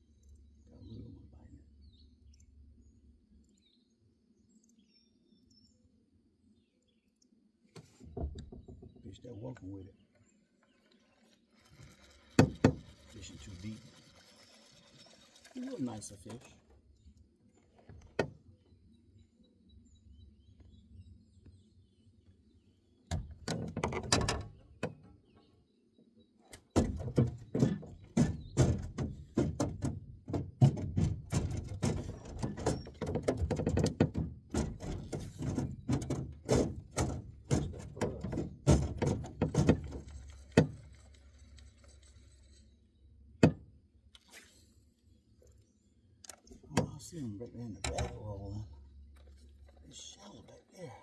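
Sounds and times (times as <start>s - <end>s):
handling knocks and thumps in boat: 7.8s - 9.8s, 11.8s - 13.8s, 23.1s - 25.5s, 26.5s - 41.4s, 43.4s - 43.7s, 46.4s - 50.4s.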